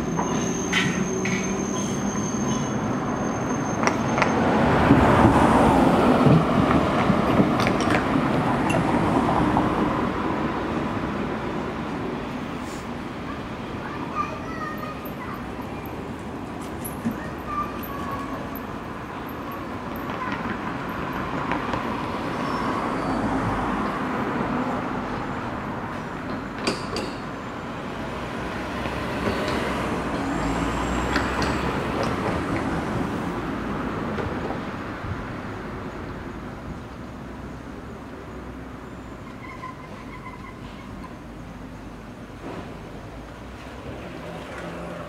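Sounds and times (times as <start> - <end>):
city traffic hum: 0.0 - 45.0.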